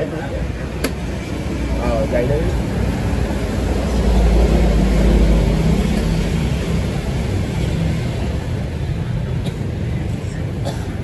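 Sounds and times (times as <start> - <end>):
vehicle engine rumbling passing: 0.4 - 9.2.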